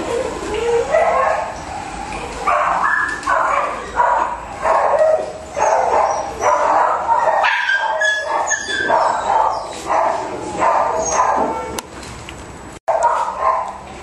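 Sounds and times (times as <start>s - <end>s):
dog barking in high yaps: 0.8s - 1.6s, 2.4s - 11.8s, 12.9s - 13.8s.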